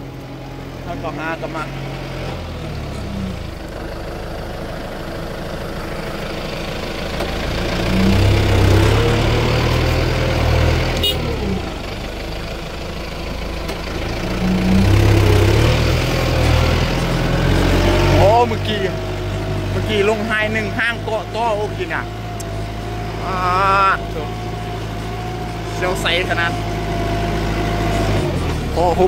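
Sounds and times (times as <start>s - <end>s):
tractor diesel engine under load: 0.0s - 29.0s.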